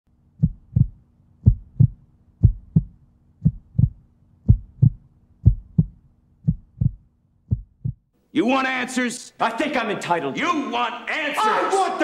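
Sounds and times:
heartbeat thumps: 0.4s - 8.1s.

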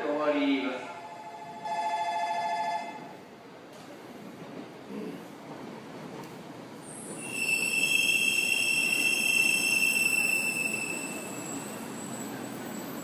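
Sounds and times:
train rumbling: 0.0s - 13.0s
high-pitched squeal: 7.2s - 12.8s.

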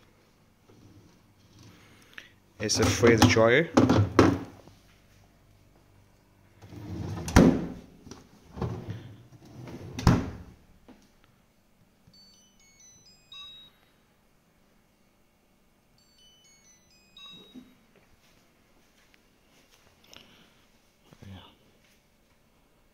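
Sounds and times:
drawer pushed shut with thuds: 7.2s - 7.8s, 9.9s - 10.5s
electronic jingle of beeps: 12.1s - 13.9s, 16.0s - 17.8s.

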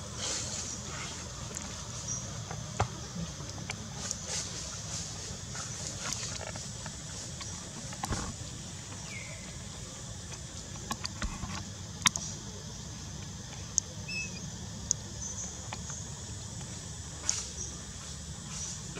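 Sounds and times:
faint chirps: 8.9s - 11.1s, 12.0s - 18.9s.

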